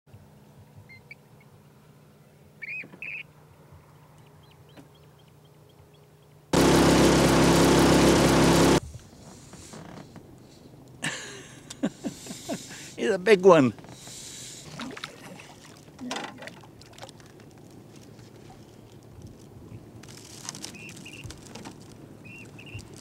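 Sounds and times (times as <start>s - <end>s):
steady hum: 6.6s - 8.8s
high bird chirps: 20.7s - 21.3s, 22.2s - 22.9s.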